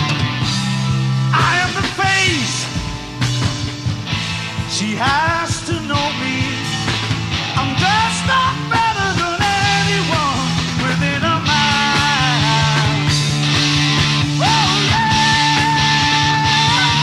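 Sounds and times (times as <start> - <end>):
rock band playing: 0.0 - 17.0
person singing: 7.6 - 13.2, 14.4 - 17.0.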